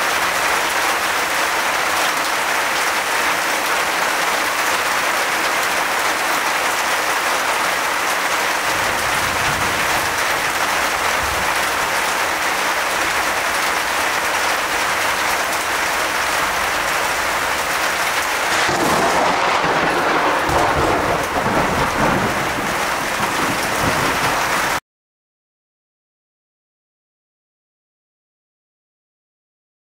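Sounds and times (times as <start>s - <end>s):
torrential rain falling: 0.0s - 24.8s
thunder rumbling: 8.6s - 12.0s, 16.5s - 24.8s.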